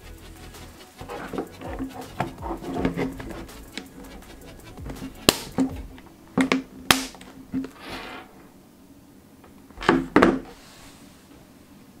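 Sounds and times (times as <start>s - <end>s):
case scraping: 1.0s - 8.5s, 9.7s - 10.8s.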